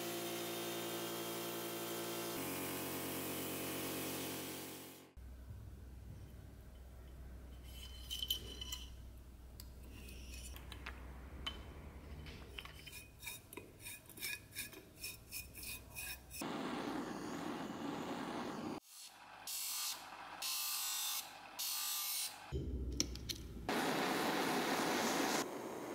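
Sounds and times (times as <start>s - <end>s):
gas torch hissing: 16.4s - 18.8s, 23.7s - 25.9s.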